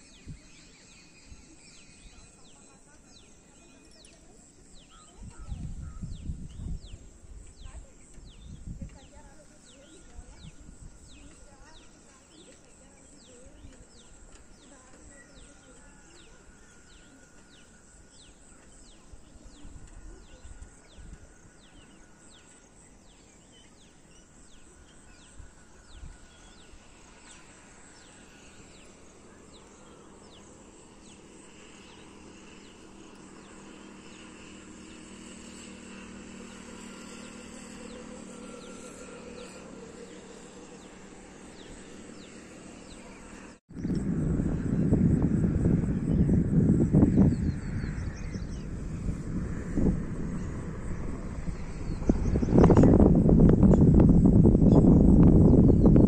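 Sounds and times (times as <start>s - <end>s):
steady low hum: 0.0s - 56.0s
low rumbles: 40.5s - 56.0s.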